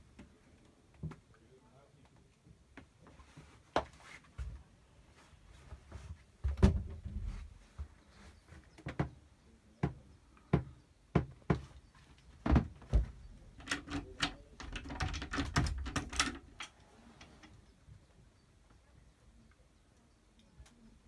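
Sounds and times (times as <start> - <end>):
knocks and thumps in wooden cabin: 0.0 - 1.4, 2.1 - 18.2
clicking and knocking: 12.4 - 17.6.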